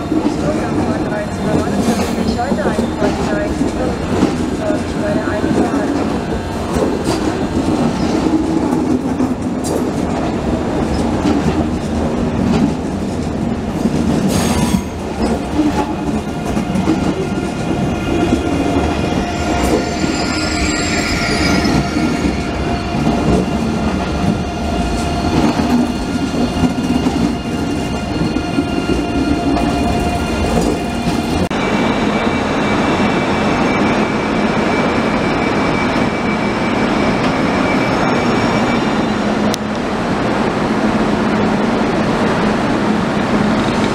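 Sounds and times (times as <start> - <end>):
train wheels rumbling over rails: 0.0 - 43.9
train whine: 0.0 - 43.9
wheels squealing: 14.3 - 31.4.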